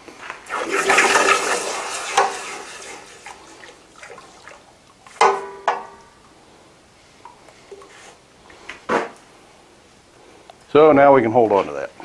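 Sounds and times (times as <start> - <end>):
hot metal sizzling in water: 0.5 - 3.9.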